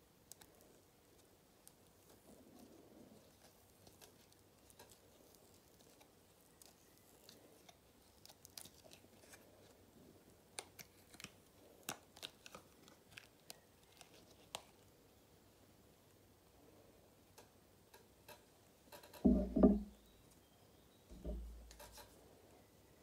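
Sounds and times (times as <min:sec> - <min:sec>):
resin crackling and clicking: 0:00.3 - 0:09.4.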